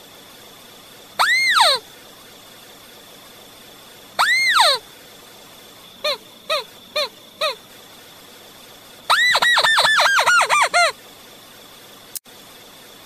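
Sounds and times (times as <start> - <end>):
crake calls: 1.2 - 1.9, 4.2 - 4.9, 5.8 - 7.8, 9.0 - 11.0.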